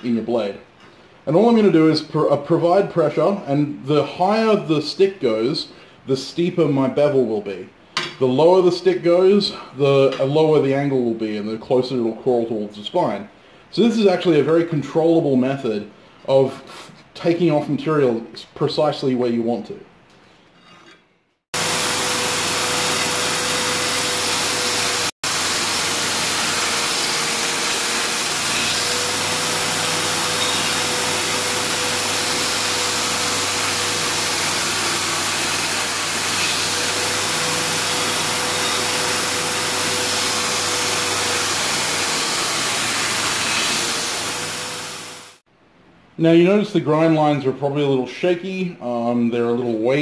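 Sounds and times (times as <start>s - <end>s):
belt grinder motor humming: 21.6s - 45.4s.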